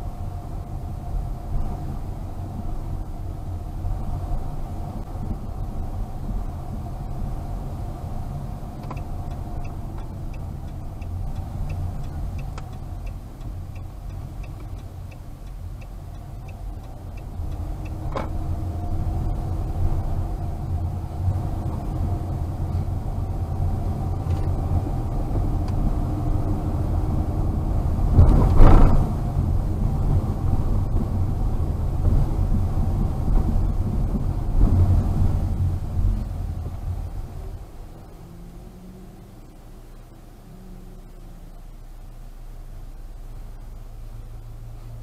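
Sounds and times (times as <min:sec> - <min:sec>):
engine and road rumble: 0:00.0 - 0:45.0
turn signal ticking: 0:06.5 - 0:27.2.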